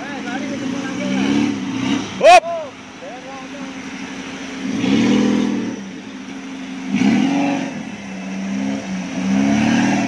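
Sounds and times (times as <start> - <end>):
engine idling and revving: 0.0 - 10.0.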